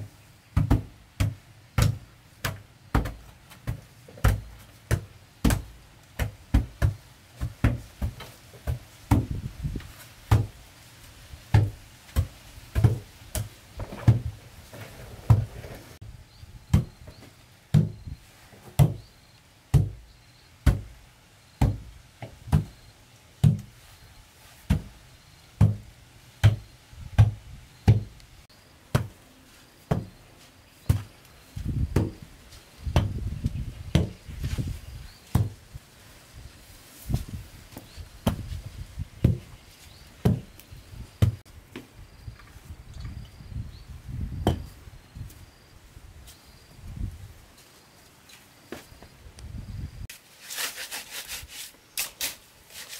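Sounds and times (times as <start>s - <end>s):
hoe chopping into dirt: 0.6s - 10.6s, 11.5s - 14.4s, 16.7s - 18.1s, 23.4s - 23.7s, 25.6s - 28.1s, 29.9s - 30.2s, 30.8s - 32.2s, 33.9s - 34.6s, 35.3s - 35.6s, 44.3s - 44.7s
brick thudding on earth floor: 44.3s - 44.8s.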